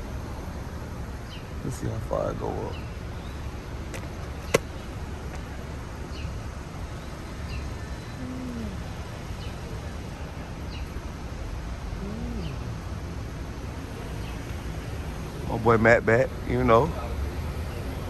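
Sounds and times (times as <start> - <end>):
low cooing call: 8.0 - 9.0, 11.9 - 12.8.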